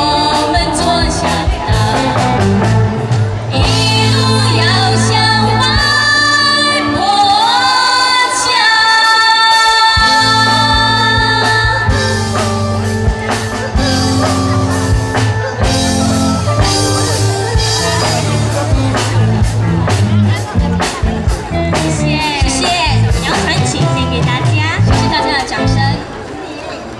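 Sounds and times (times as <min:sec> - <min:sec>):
women singing pop song: 0:00.0 - 0:02.4, 0:03.5 - 0:12.2
live band with keyboard: 0:00.0 - 0:26.9.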